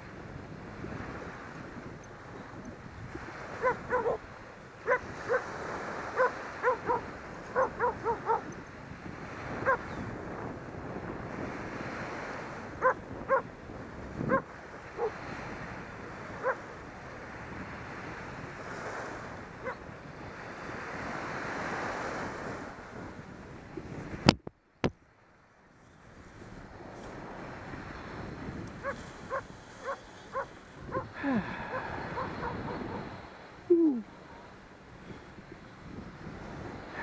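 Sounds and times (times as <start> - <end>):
wind rushing over microphone: 0.0 - 25.0, 25.9 - 37.0
dog barking: 3.6 - 4.2, 4.8 - 5.5, 6.1 - 8.5, 9.6 - 9.9, 12.8 - 13.5, 14.3 - 15.2, 16.4 - 16.7, 19.6 - 19.8, 28.8 - 31.1, 31.7 - 33.1.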